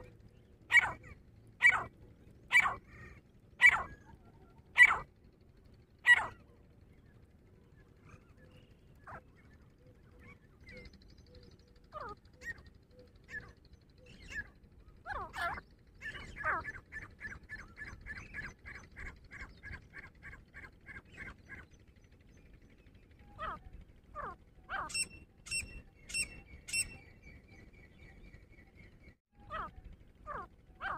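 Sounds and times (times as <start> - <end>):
francolins calling: 0.0 - 1.9, 2.5 - 5.1, 6.0 - 6.4, 11.8 - 21.6, 23.2 - 27.9
fast run of repeated bird notes: 0.0 - 30.9.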